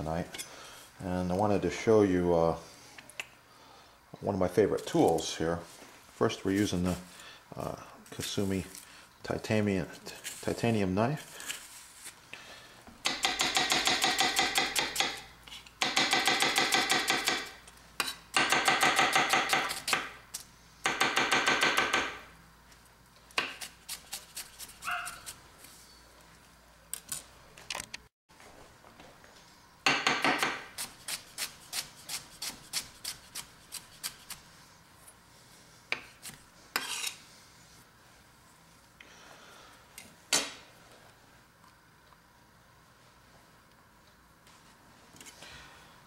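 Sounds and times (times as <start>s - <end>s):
knife chopping on wooden board: 13.0s - 15.2s, 15.8s - 20.2s, 23.4s - 25.2s, 29.9s - 34.3s.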